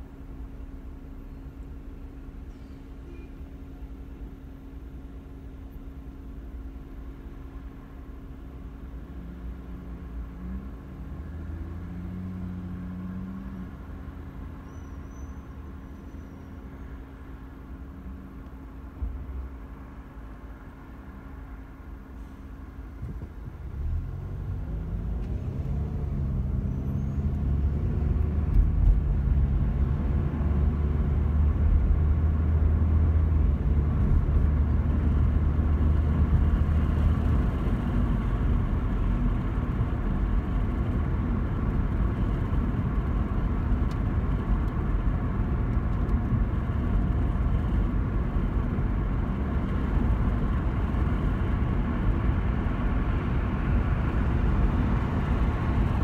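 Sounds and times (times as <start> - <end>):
car engine accelerating: 9.1 - 14.6, 23.0 - 56.0.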